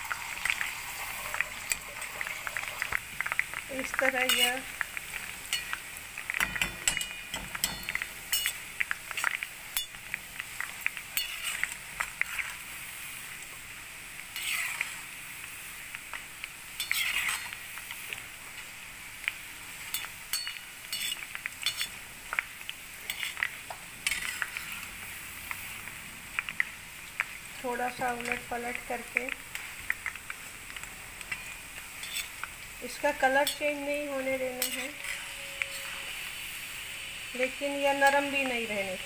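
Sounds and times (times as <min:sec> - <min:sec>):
noodles sizzling in hot oil: 0:00.0 - 0:39.0
metal ladle clicking and scraping: 0:31.3 - 0:32.4, 0:34.6 - 0:36.0.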